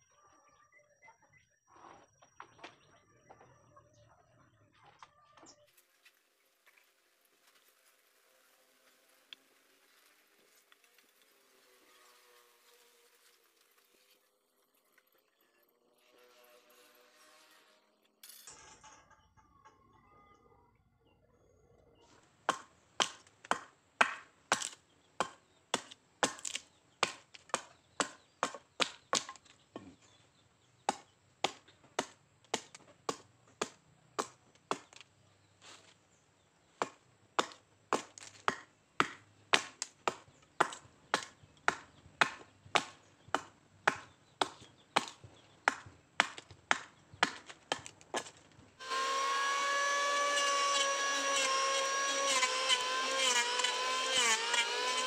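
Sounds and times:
hatchet chopping wood: 22.4 - 29.6, 30.8 - 35.1, 36.8 - 55.0
electric planer whining: 48.8 - 55.0.

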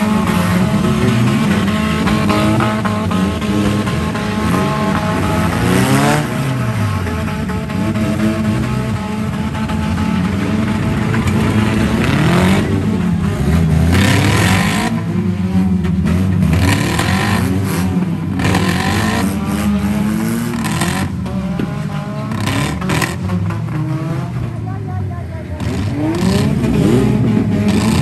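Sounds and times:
car engines revving hard: 0.0 - 28.0
harsh noise: 0.0 - 28.0.

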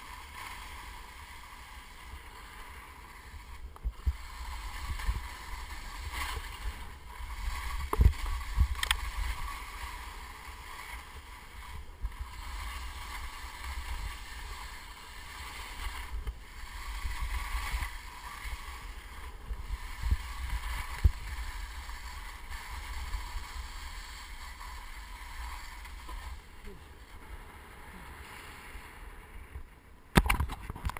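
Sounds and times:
skis sliding on crusted snow: 0.0 - 30.9
wind on microphone: 3.1 - 27.2.

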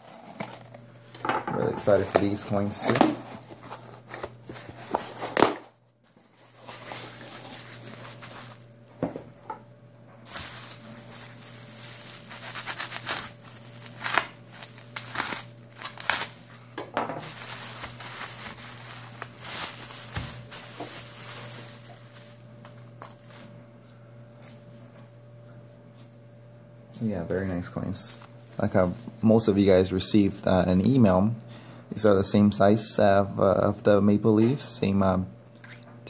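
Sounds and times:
bubble wrap crinkling and popping: 6.3 - 9.0, 10.2 - 16.6, 17.2 - 23.4.

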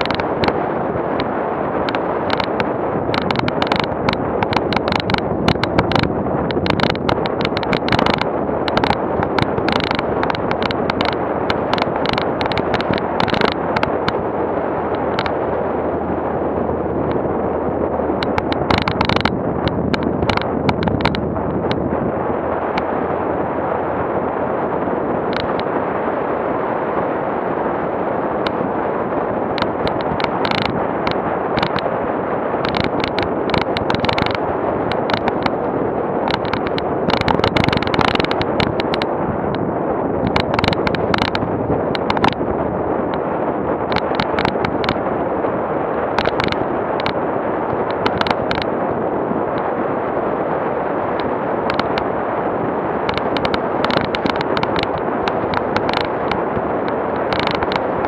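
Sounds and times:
knocks and clatters over stones: 0.0 - 0.5, 1.9 - 14.2, 18.2 - 21.8, 29.6 - 31.8, 32.6 - 35.6, 36.3 - 39.1, 40.2 - 42.4, 46.2 - 47.2, 47.8 - 48.7, 51.7 - 52.0, 53.1 - 56.4, 57.2 - 57.9
vehicle road noise: 0.0 - 58.0.

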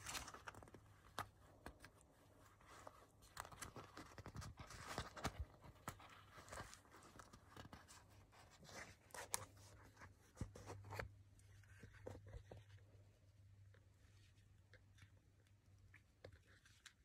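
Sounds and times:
paper and plastic rustling: 0.0 - 12.9
low steady hum: 0.0 - 17.0.

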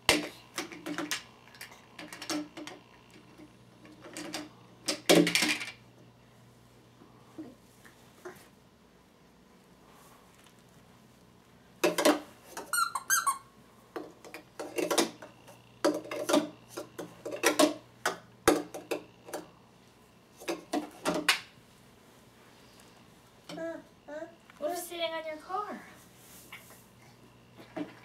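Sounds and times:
plastic toys clicking and clattering: 0.1 - 5.8, 11.8 - 13.2, 14.0 - 19.5.

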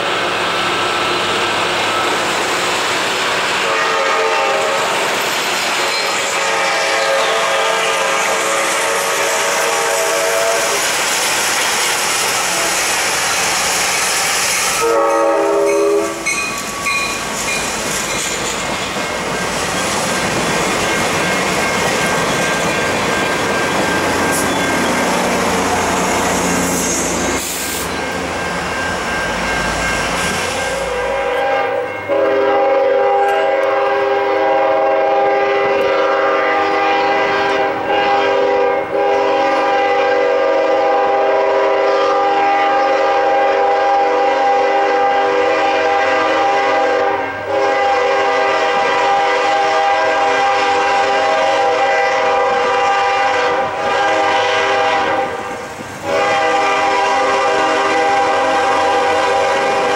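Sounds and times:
train rumbling past: 0.0 - 59.9
train horn: 3.5 - 5.2, 5.9 - 11.0, 12.2 - 13.2, 14.6 - 16.5, 30.3 - 59.9.

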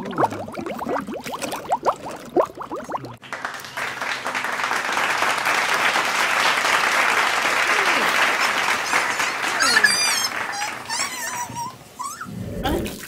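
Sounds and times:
water gurgling and bubbling: 0.0 - 3.2.

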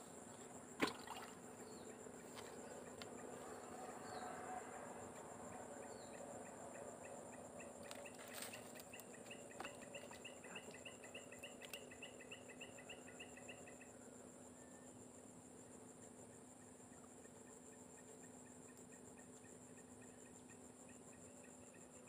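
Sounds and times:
insect high drone: 0.0 - 22.0.

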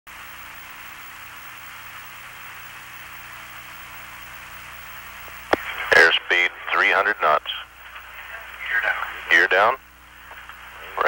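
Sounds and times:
low mains hum: 0.1 - 11.0
steady hiss: 0.1 - 11.0.

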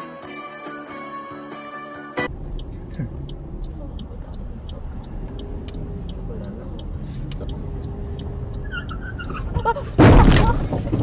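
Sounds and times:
regular high ticking: 2.2 - 10.0
sharp clicks: 2.3 - 9.6
car cabin rumble: 2.3 - 11.0.

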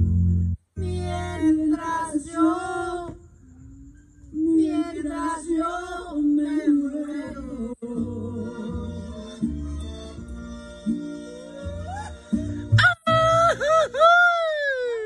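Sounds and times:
group singing unaccompanied: 0.8 - 3.3, 4.4 - 9.8.

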